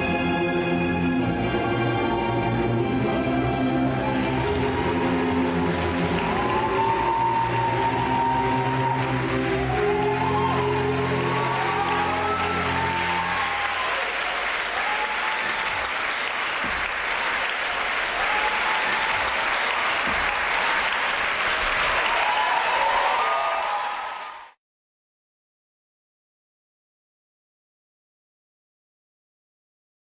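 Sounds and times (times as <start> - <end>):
dance music: 1.2 - 14.0
audience applauding and cheering: 1.2 - 24.6.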